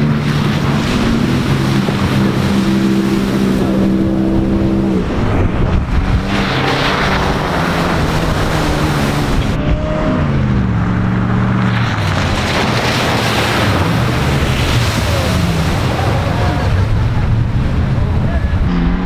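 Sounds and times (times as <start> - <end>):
car engine revving: 0.0 - 19.0
water spraying: 11.6 - 17.8.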